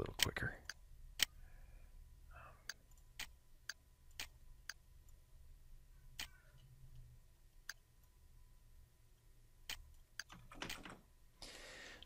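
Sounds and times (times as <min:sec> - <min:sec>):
faint low hum: 0:00.0 - 0:12.0
computer mouse clicking: 0:02.7 - 0:05.2, 0:06.2 - 0:07.8, 0:09.7 - 0:11.0.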